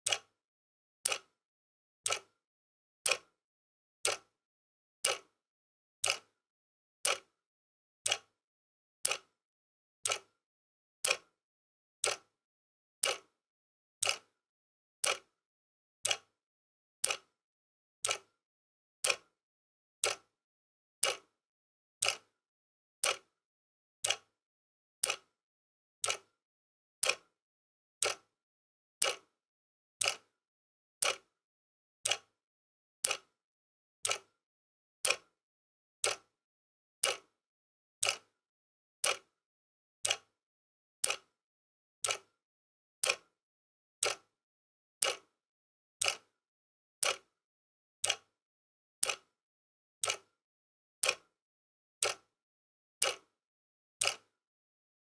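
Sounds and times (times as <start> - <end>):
wall clock ticking: 2.0 - 2.2, 17.0 - 17.2, 30.0 - 30.2, 40.0 - 40.2.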